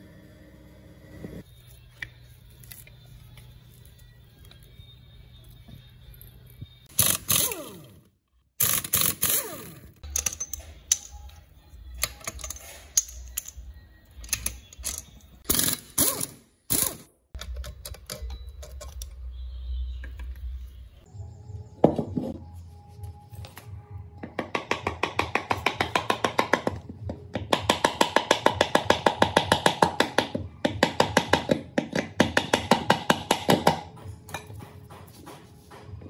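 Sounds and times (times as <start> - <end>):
metal tools clinking on engine block: 10.1 - 11.3, 12.0 - 15.3.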